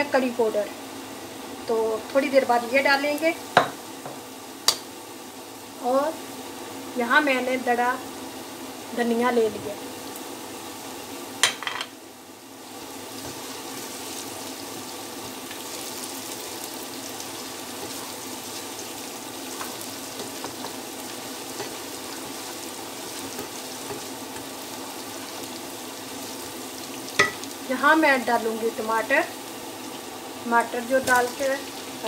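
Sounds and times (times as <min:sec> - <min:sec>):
onions sizzling in oil: 0:00.0 - 0:32.0
spatula stirring ticks: 0:19.4 - 0:25.6.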